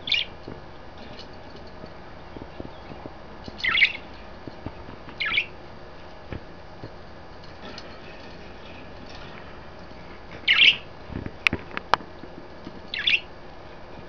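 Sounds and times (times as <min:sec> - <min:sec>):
budgerigars chirping: 0:00.0 - 0:00.4, 0:03.6 - 0:04.2, 0:05.2 - 0:05.6, 0:10.4 - 0:10.9, 0:12.9 - 0:13.3.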